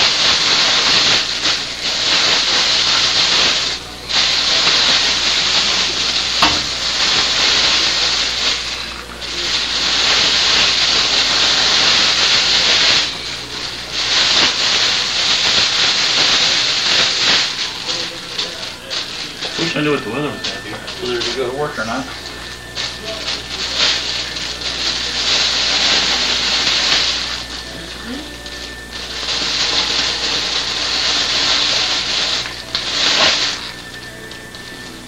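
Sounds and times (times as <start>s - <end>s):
sack rustling and crinkling: 29.0s - 34.1s.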